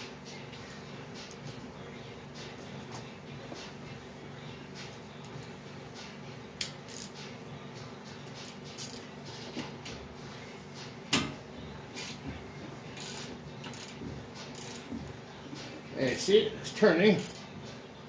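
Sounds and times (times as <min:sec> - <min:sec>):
ratchet wrench clicking: 0:06.6 - 0:07.2, 0:08.2 - 0:09.0, 0:13.0 - 0:14.9, 0:17.2 - 0:17.4.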